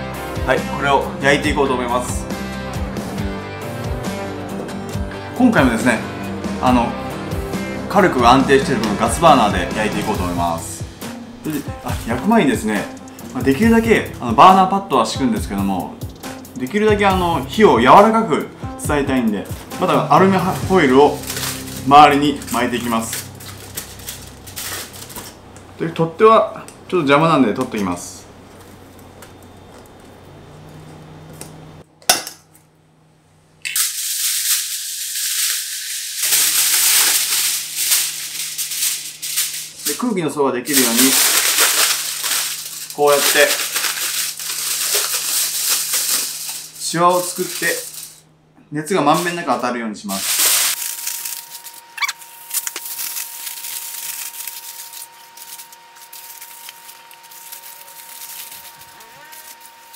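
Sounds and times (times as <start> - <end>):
aluminium foil crinkling: 9.9 - 14.0, 19.2 - 25.6, 33.8 - 48.2, 49.1 - 59.9.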